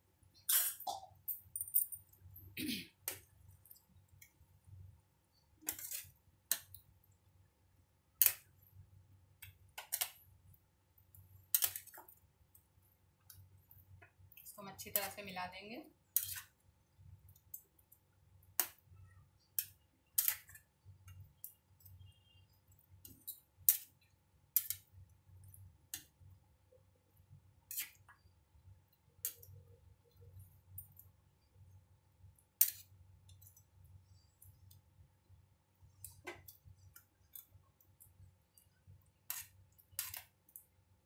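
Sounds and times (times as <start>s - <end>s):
spatula scraping a cooking pan: 5.6s - 6.2s, 16.1s - 16.5s.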